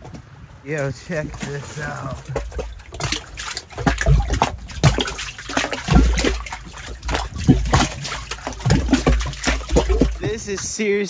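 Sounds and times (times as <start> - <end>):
low rumbling on microphone: 0.0 - 10.8
water trickling into pool: 0.7 - 10.8.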